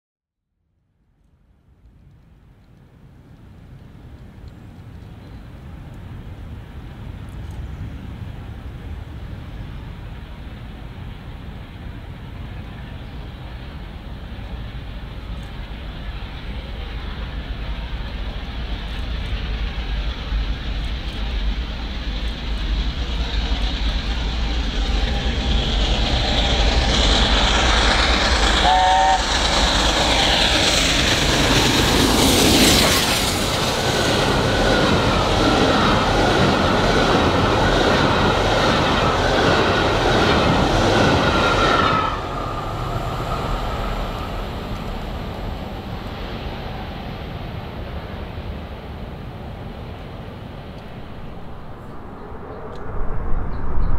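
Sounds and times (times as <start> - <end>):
steam locomotive passing: 2.7 - 53.9
steam whistle chime: 28.6 - 29.4.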